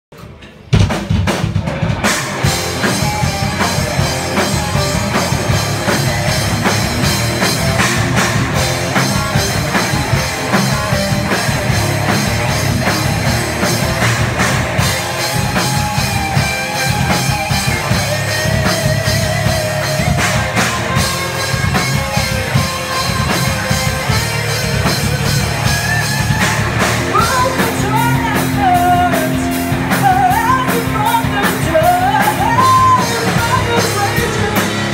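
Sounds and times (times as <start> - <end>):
live rock band playing: 0.6 - 34.9
woman singing: 27.1 - 34.9.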